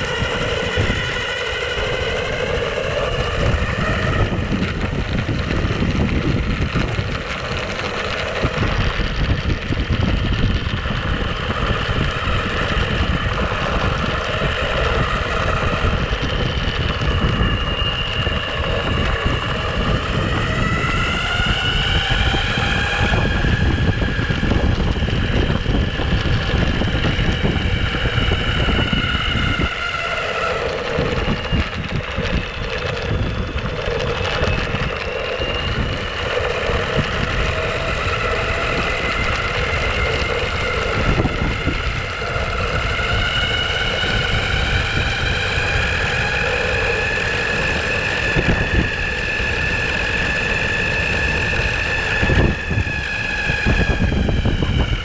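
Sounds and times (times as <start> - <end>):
electric skateboard motor whine: 0.0 - 55.0
wheels rolling on road: 0.0 - 55.0
wind on microphone: 0.0 - 55.0.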